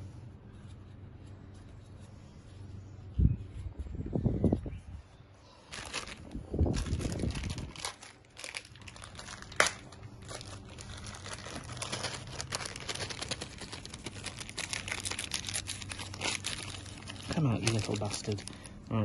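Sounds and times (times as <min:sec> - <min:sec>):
plastic bag crinkling: 0:05.6 - 0:18.9.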